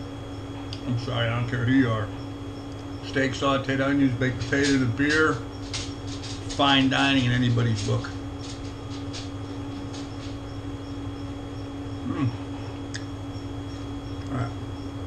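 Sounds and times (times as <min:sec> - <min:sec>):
air conditioner humming: 0:00.0 - 0:15.0
man murmuring mmm: 0:12.0 - 0:12.5
wet mouth clicks: 0:12.9 - 0:13.1.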